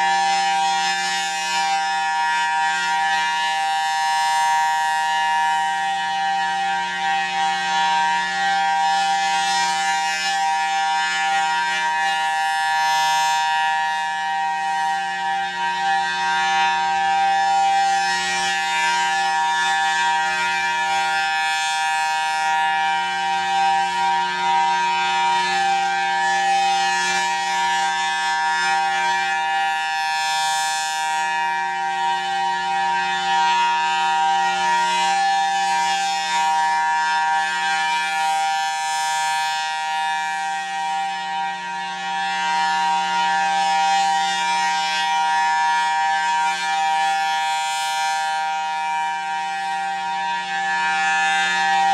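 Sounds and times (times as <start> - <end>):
warning siren steady tone: 0.0 - 51.9.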